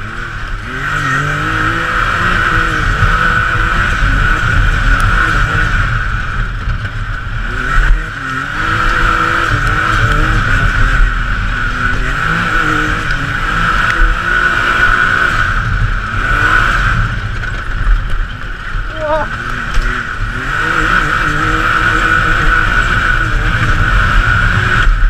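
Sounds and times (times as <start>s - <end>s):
engine revving: 0.0s - 25.0s.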